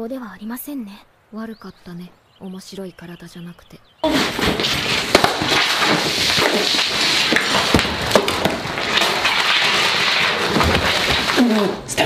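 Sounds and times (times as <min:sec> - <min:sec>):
plastic knocks and cracks: 0:04.0 - 0:11.7.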